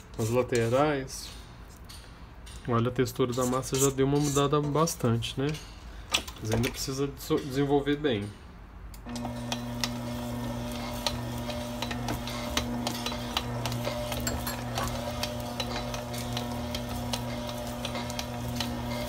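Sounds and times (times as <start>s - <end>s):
stand mixer motor humming: 9.1s - 19.0s.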